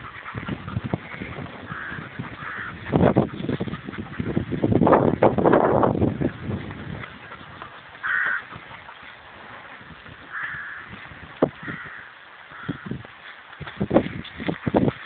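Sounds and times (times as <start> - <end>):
steps rustling in dry grass: 0.0 - 15.0
crow cawing: 1.7 - 2.8, 8.0 - 8.5, 10.3 - 11.0, 11.6 - 13.0.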